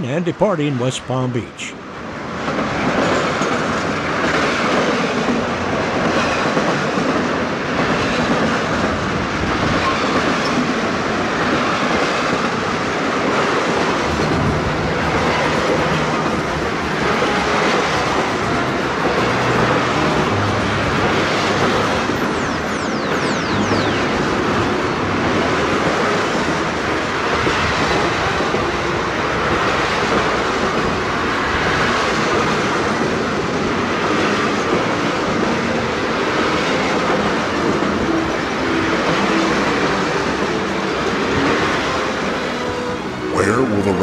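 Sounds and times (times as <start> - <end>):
passenger train rumbling past: 0.0 - 44.0.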